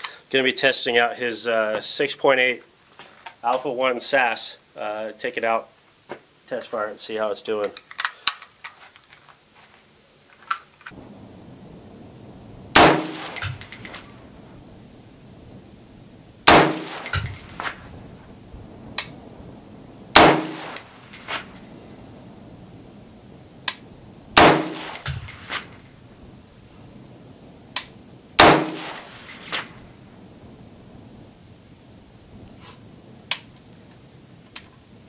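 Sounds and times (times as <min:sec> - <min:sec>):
rifle shots with ringing tail: 0:12.7 - 0:14.2, 0:16.4 - 0:17.8, 0:20.1 - 0:21.6, 0:24.4 - 0:25.8, 0:28.4 - 0:29.9.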